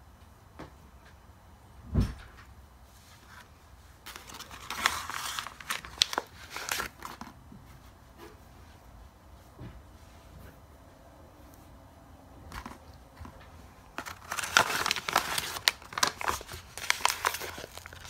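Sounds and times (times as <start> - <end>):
thump: 1.9 - 2.4
wrapper crinkling and rustling: 4.0 - 7.4, 13.9 - 18.0.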